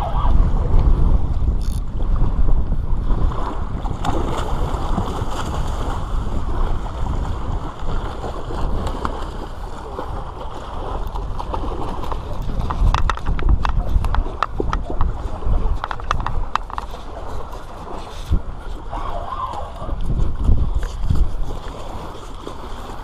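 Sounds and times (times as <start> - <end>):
wind rumbling on microphone: 0.0 - 23.0.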